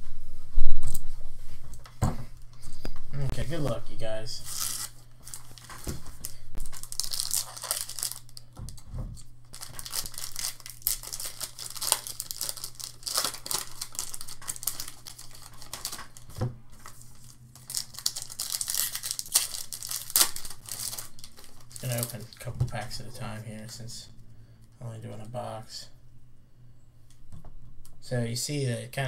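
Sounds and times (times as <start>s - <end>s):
faint low hum: 0.0s - 29.0s
foil packs tearing and crinkling: 4.4s - 8.8s, 9.5s - 23.0s.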